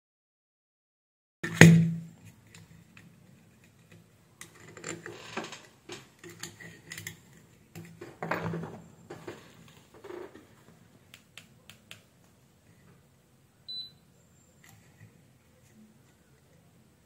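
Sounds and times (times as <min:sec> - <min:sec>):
faint low hum: 0:02.0 - 0:17.0.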